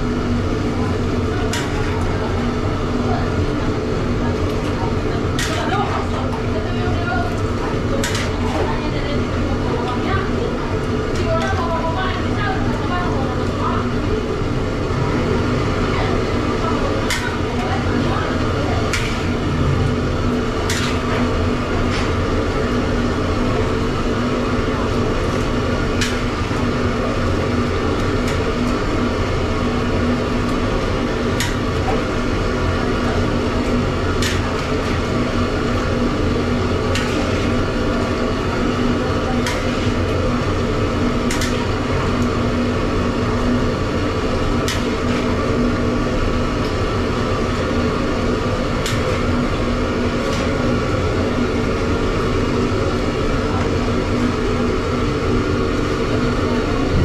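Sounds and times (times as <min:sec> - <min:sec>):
machine drone: 0:13.2 - 0:46.4, 0:47.0 - 0:57.0.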